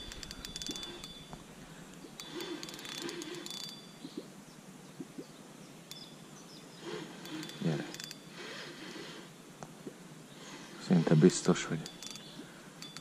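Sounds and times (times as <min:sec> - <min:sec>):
fishing reel clicking: 0:00.0 - 0:01.4, 0:02.2 - 0:03.9, 0:06.9 - 0:08.8, 0:11.2 - 0:13.0.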